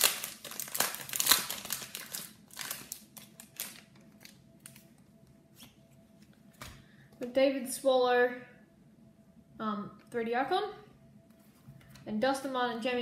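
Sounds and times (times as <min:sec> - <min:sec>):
foil wrapper tearing and crinkling: 0:00.0 - 0:04.9.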